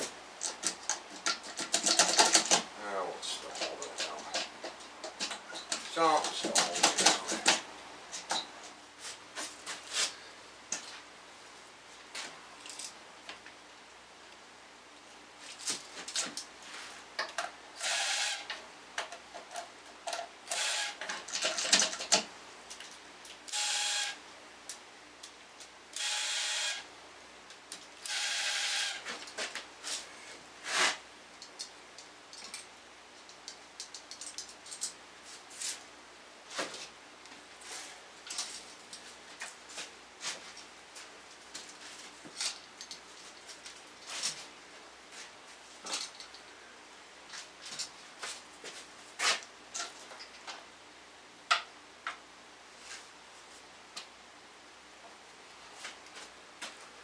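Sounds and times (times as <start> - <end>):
small power tool whirring: 17.8 - 18.5, 20.5 - 21.0, 23.5 - 24.2, 26.0 - 26.9, 28.0 - 29.1.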